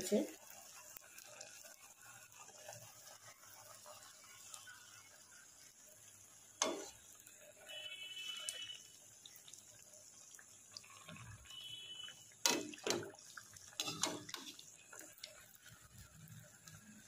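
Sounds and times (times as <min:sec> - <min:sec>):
batter sizzling in oil: 0:00.0 - 0:17.0
spoon knocking against pan: 0:12.4 - 0:13.2.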